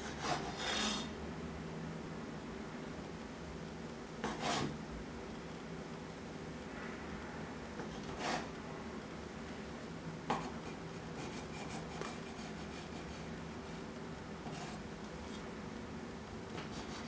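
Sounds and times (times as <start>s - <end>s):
bread knife sawing cake: 0.0s - 1.1s
low steady hum: 0.0s - 17.0s.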